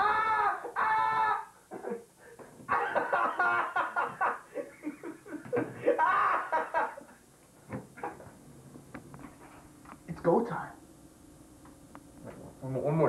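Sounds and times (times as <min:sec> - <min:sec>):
man laughing in choppy bursts: 0:02.7 - 0:07.2.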